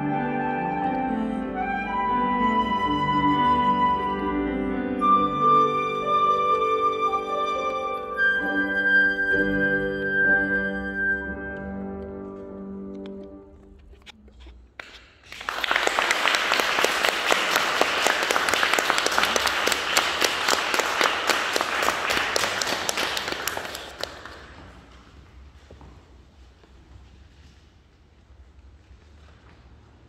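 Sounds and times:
flute and piano chord: 0.0 - 11.8
audience applause: 15.2 - 24.9.

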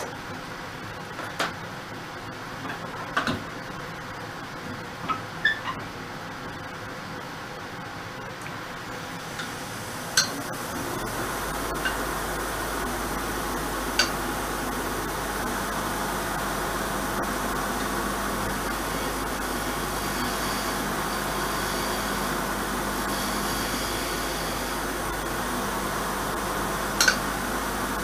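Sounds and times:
wood lathe running: 9.8 - 28.0.

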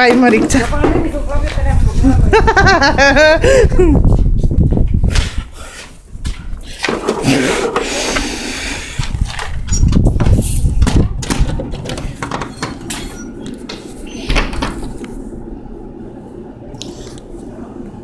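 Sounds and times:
rubbing and knocks on microphone: 9.0 - 12.8.

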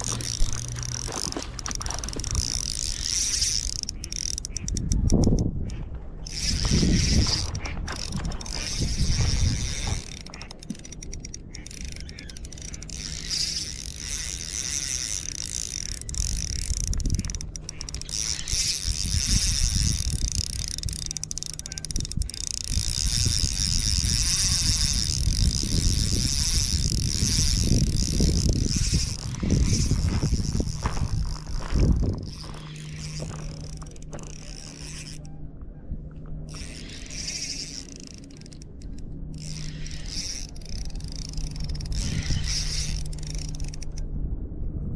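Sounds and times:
fishing reel whirring: 0.0 - 35.4, 36.1 - 44.1
low rumble: 22.0 - 44.9.

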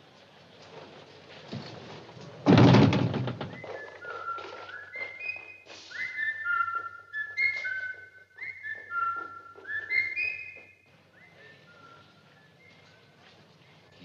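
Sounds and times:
person whistling a tune: 3.6 - 13.0.

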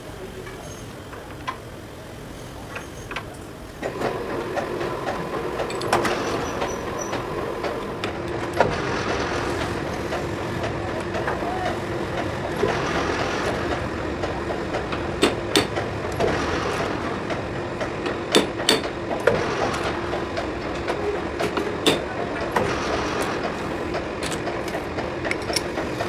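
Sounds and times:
machine hum: 3.8 - 18.3.

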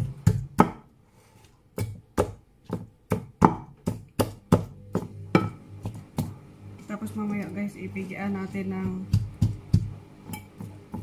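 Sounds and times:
pestle pounding in bowl: 0.0 - 0.9, 1.8 - 6.4, 8.4 - 11.0.

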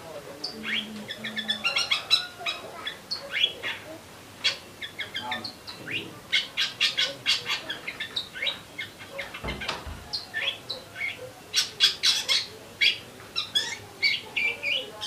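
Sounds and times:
songbird chirping: 0.0 - 15.0.

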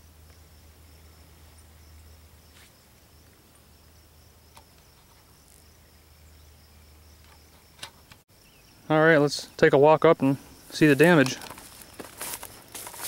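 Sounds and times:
low steady hum: 0.0 - 7.6
insects droning: 0.0 - 13.0.

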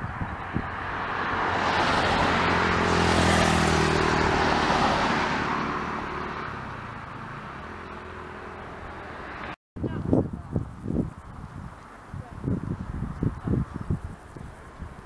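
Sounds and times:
car passing by: 0.0 - 9.6.

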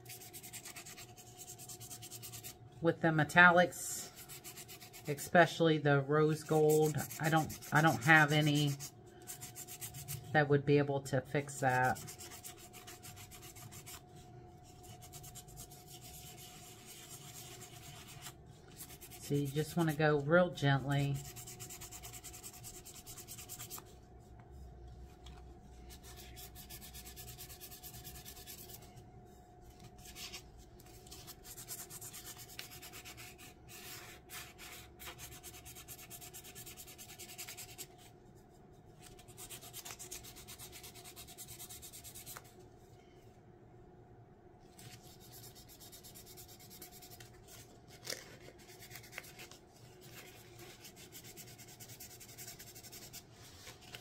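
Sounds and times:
sandpaper rubbing: 0.0 - 2.6, 4.2 - 5.2, 6.3 - 10.2, 11.8 - 14.0, 14.8 - 19.9, 21.2 - 23.9, 25.9 - 28.8, 31.1 - 37.9, 48.6 - 54.0
faint steady hum: 0.0 - 54.0.

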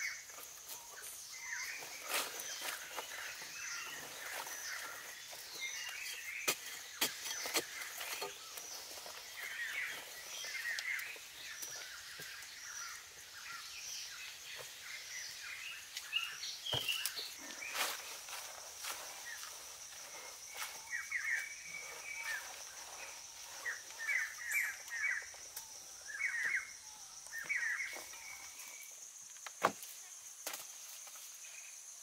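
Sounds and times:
forest birds chirping: 0.0 - 32.0
high insect drone: 0.0 - 32.0
basket scraping in soil: 1.5 - 12.7, 16.6 - 25.2.

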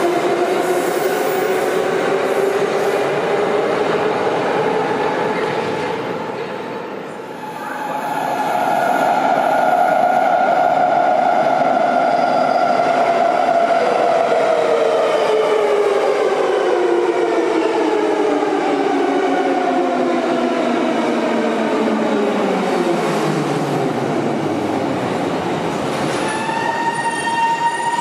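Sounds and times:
metro train motors whining: 7.1 - 19.3.

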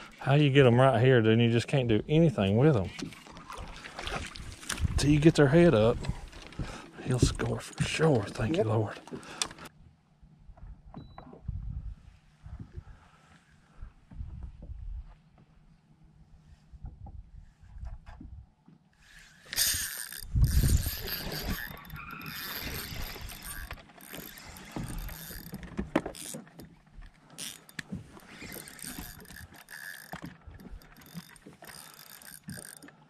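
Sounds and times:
fishing reel clicking: 19.2 - 26.4, 27.4 - 32.9.

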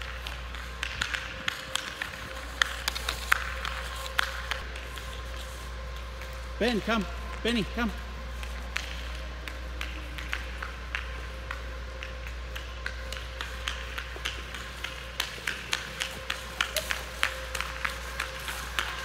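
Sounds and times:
paws tapping on ice: 0.0 - 6.4, 8.4 - 19.0
steady hum: 0.0 - 19.0.

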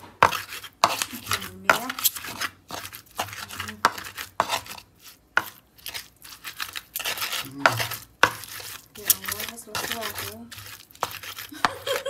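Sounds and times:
stone pestle knocking on clay: 0.0 - 2.5, 3.2 - 4.6, 7.6 - 11.9
wet scraping: 0.0 - 12.0.

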